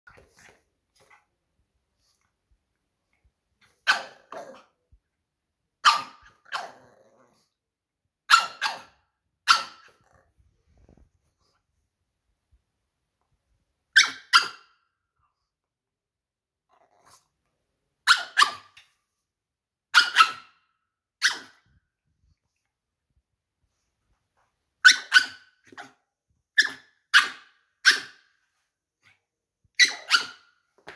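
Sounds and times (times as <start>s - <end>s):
dog barking: 5.8s - 6.7s, 8.3s - 10.0s, 19.9s - 20.6s.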